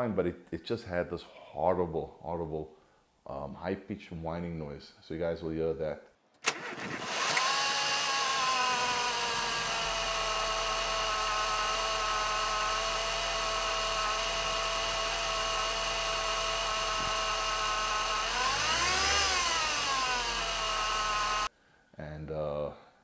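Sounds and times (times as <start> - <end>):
car engine idling: 6.5 - 21.5
high-pitched alternator whine: 7.1 - 21.5.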